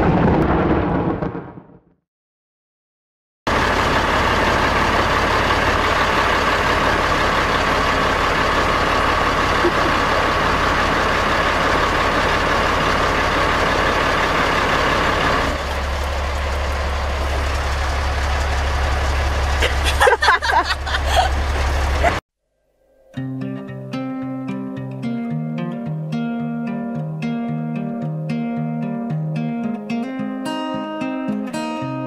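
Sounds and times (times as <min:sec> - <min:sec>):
truck engine idling: 0:03.5 - 0:22.2.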